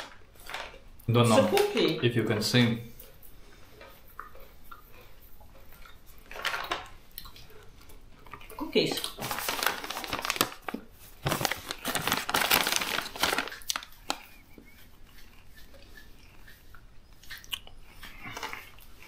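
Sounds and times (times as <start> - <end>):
snack bag crinkling: 0.0 - 2.0, 6.1 - 15.6.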